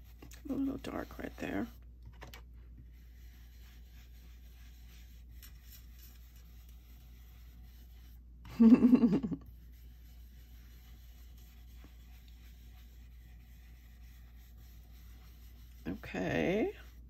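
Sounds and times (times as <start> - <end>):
brush scratching on paper: 0.0 - 1.8, 2.7 - 17.0.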